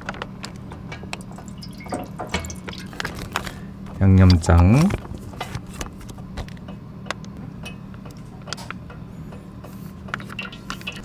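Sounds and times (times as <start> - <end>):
sauce dribbling into pan: 1.2 - 3.0.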